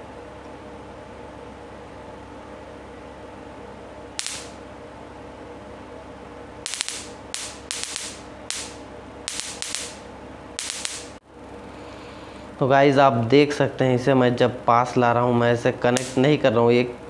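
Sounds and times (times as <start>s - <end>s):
faint steady hum: 0.0s - 17.0s
electric sparks cracking: 4.2s - 4.6s, 6.7s - 11.2s, 16.0s - 16.2s.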